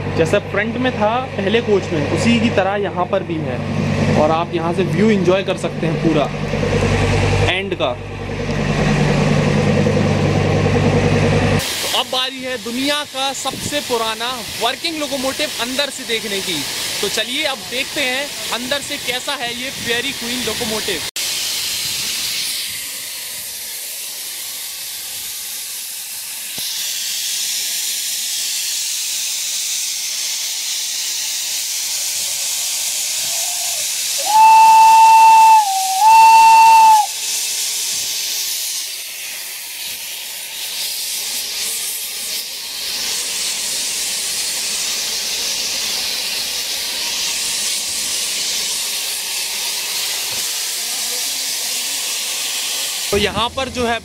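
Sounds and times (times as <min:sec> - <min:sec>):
steam hissing: 0:11.5 - 0:54.0
steam locomotive whistle blasts: 0:33.2 - 0:37.4.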